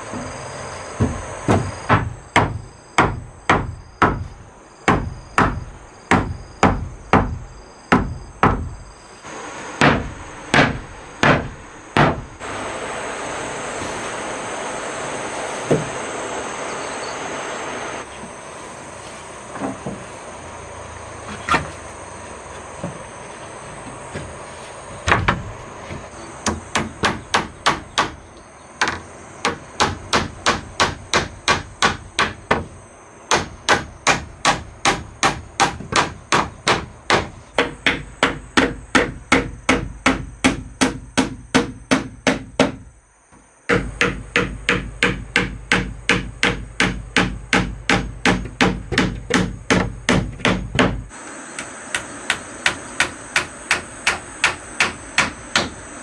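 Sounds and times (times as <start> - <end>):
hammer driving nails into wood: 9.8 - 12.3, 33.3 - 42.8, 43.7 - 51.0.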